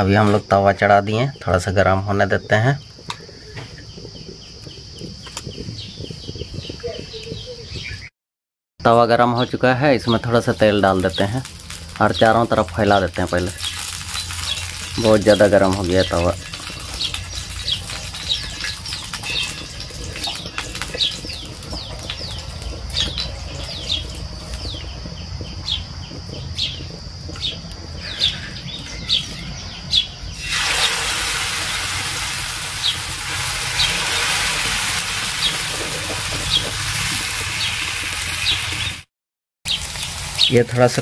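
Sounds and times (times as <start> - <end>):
small birds chirping: 0.0 - 8.1, 9.1 - 31.7, 32.8 - 36.8, 37.4 - 39.1, 39.7 - 41.0
batter sizzling on hot pan: 9.4 - 39.1, 39.7 - 41.0.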